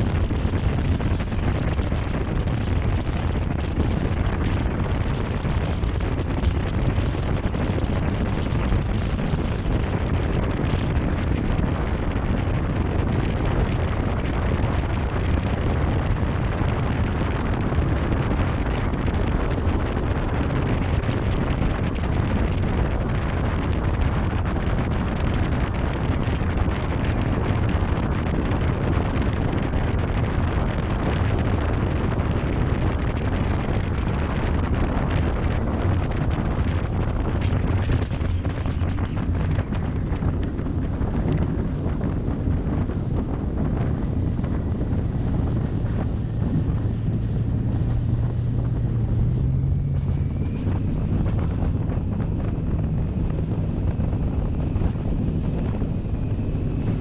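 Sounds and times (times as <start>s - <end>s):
boat engine low drone: 0.0s - 57.0s
water rushing along hull: 0.0s - 57.0s
wind buffeting microphone: 0.0s - 57.0s.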